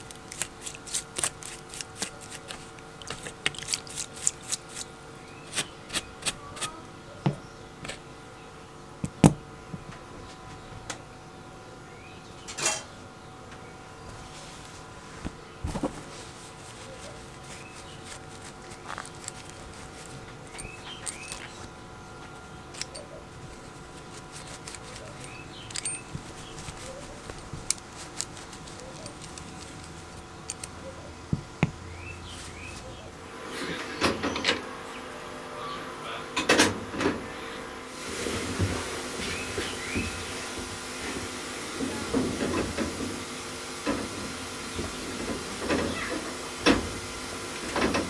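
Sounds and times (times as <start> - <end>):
cloth rubbing metal: 0.0 - 4.9, 14.2 - 21.8, 22.4 - 30.7
small metal parts clicking: 0.0 - 4.9, 17.0 - 21.7, 22.7 - 30.8
steady hum: 0.0 - 45.4.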